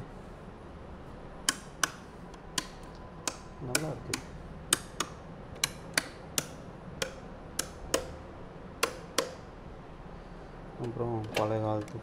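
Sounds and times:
light switches clicking: 0:01.4 - 0:08.2, 0:08.8 - 0:09.5.

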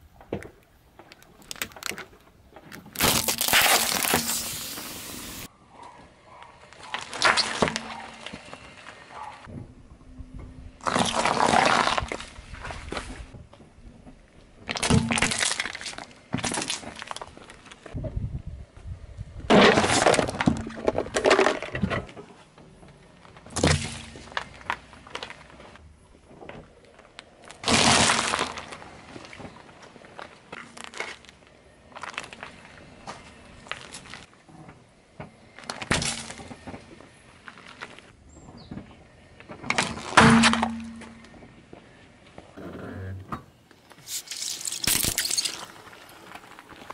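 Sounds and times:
grit crackling under tyre: 0:00.0 - 0:09.5, 0:10.7 - 0:46.9
plastic tubs crushed crackling: 0:01.0 - 0:05.5, 0:10.8 - 0:13.1, 0:19.5 - 0:22.2, 0:27.4 - 0:32.5, 0:39.5 - 0:41.3, 0:44.0 - 0:46.9
tyre crushing gherkins: 0:01.4 - 0:05.5
sachet bursting pop: 0:02.9 - 0:05.5.

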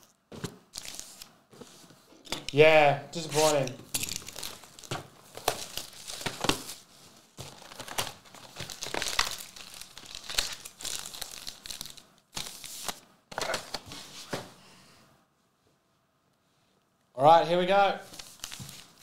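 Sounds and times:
plastic wrap crinkling: 0:00.0 - 0:01.3, 0:03.2 - 0:14.0, 0:18.1 - 0:19.0.

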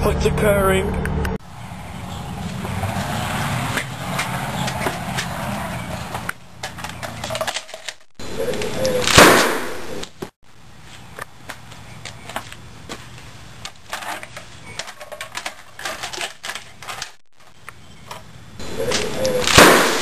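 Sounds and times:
loud gunshot: 0:09.0 - 0:09.8, 0:19.4 - 0:20.0.

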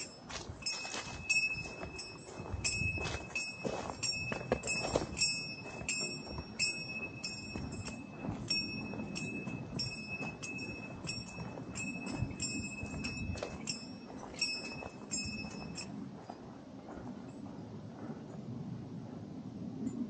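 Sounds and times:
small metal bell jingling: 0:00.0 - 0:15.9
low steady rustling: 0:00.0 - 0:19.8.

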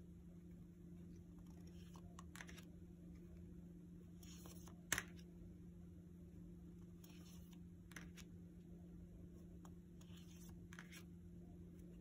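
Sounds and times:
low steady hum: 0:00.0 - 0:12.0
cards brushing: 0:01.3 - 0:02.7, 0:04.1 - 0:05.2, 0:06.9 - 0:08.3, 0:10.0 - 0:11.1.

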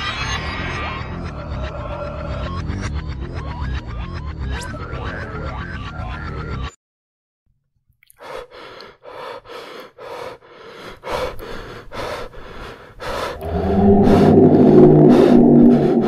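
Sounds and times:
quick gasping breaths: 0:08.2 - 0:16.0.

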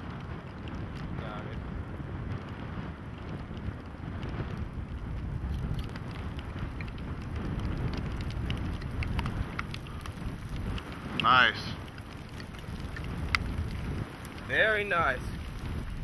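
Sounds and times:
wind buffeting microphone: 0:00.0 - 0:16.0
light ticks: 0:05.4 - 0:16.0.

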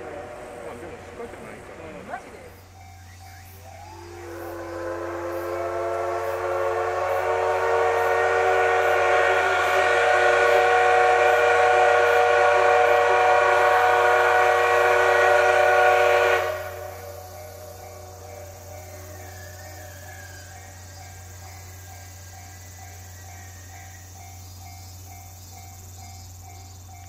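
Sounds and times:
steam locomotive whistle: 0:00.0 - 0:01.6, 0:02.8 - 0:24.1.

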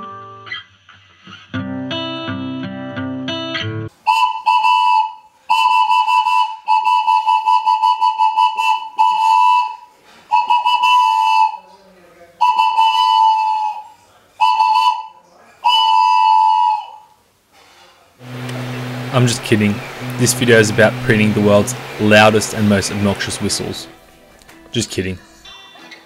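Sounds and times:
train whistle blasts: 0:04.0 - 0:11.6, 0:12.4 - 0:17.1, 0:18.2 - 0:24.1.

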